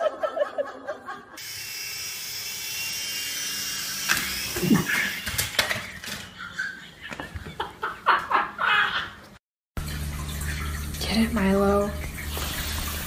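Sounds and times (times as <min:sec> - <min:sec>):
toy electric motor whining: 0:01.4 - 0:06.5.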